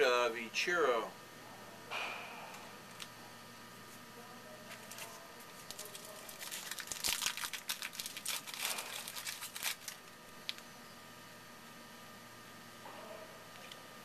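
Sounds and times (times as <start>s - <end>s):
wrapper tearing and crinkling: 4.7s - 10.6s.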